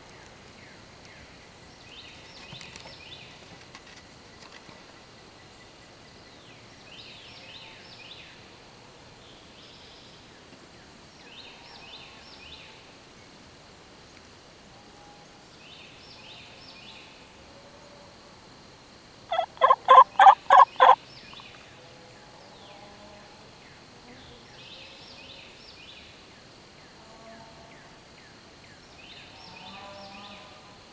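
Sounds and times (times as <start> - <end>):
turkey gobbling: 19.3 - 21.0
faint songbird phrases: 20.0 - 30.5.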